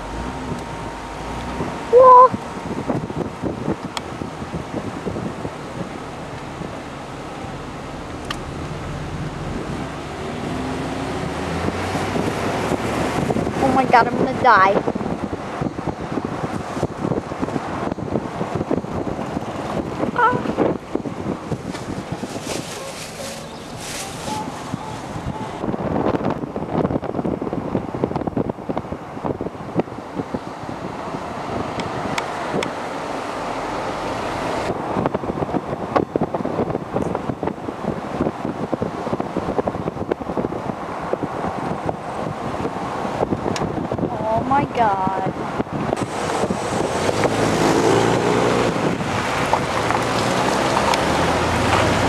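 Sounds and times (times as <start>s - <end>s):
car road noise: 0.0s - 52.0s
wind on microphone: 0.0s - 52.0s.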